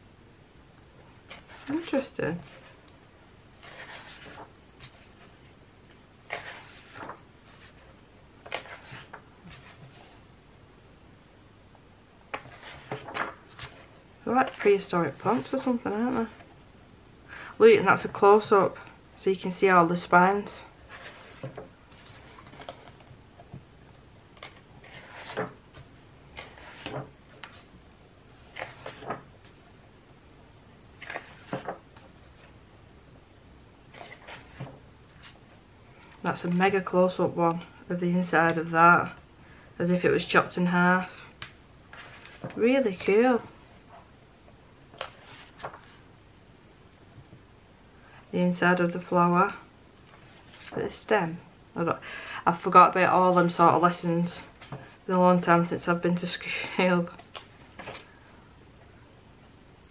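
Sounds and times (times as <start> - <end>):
paper pages turning: 3.6 - 5.4, 6.3 - 10.2, 12.3 - 16.5, 20.8 - 23.1, 24.4 - 27.8, 28.4 - 29.6, 31.0 - 32.6, 33.9 - 35.4, 41.9 - 42.6, 44.9 - 46.0, 57.2 - 58.3.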